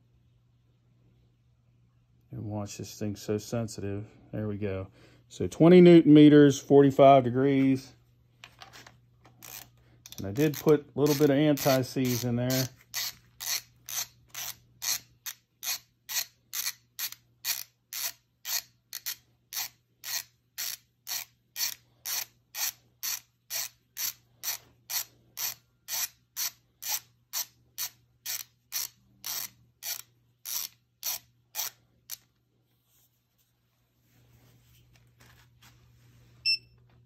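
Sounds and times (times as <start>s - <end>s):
torque wrench clicking: 9.4s - 32.3s.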